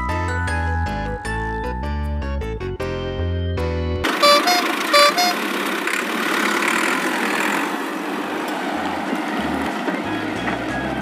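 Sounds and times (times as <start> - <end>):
engine running: 4.0 - 11.0
vehicle horn tooting: 4.1 - 5.5.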